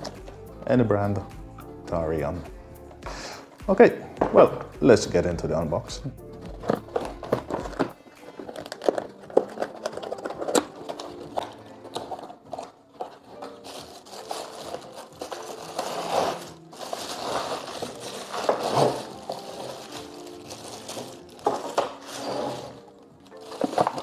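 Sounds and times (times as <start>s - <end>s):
plastic bag rustling: 6.6s - 24.0s.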